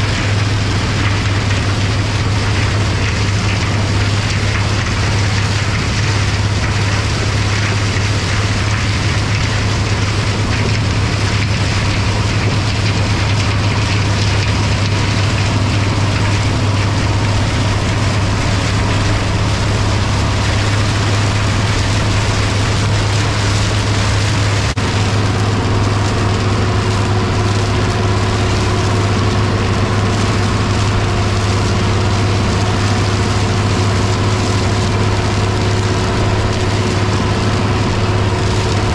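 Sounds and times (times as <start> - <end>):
diesel tractor engine under load: 0.0 - 38.9
stalk chopper shredding corn stalks: 0.0 - 38.9
steady whine: 0.0 - 38.9.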